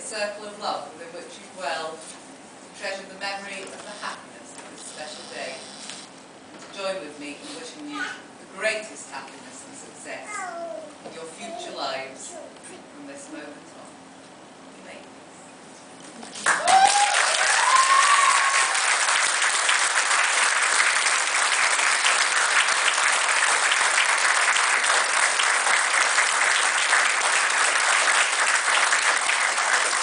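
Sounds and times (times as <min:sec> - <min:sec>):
crowd clapping: 0:16.2 - 0:30.0
people cheering: 0:16.4 - 0:30.0.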